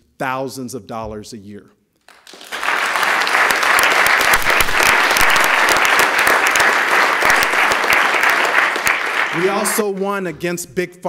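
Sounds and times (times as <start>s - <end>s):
crowd applauding: 2.1s - 10.2s.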